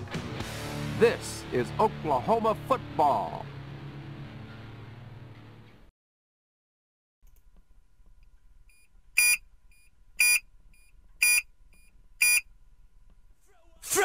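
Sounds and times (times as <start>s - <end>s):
faint short beep: 8.7s - 12.4s
loud high-pitched electronic beeps: 9.2s - 9.4s, 10.2s - 10.4s, 11.2s - 11.4s, 12.2s - 12.4s.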